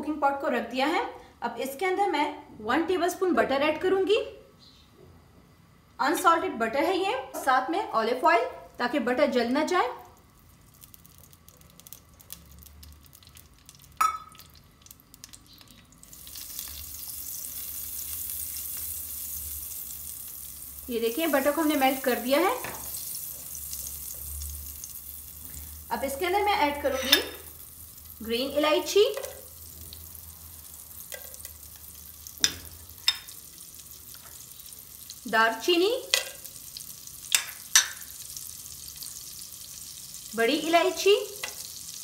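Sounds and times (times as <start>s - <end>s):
butter and oil sizzling: 8.6s - 42.0s.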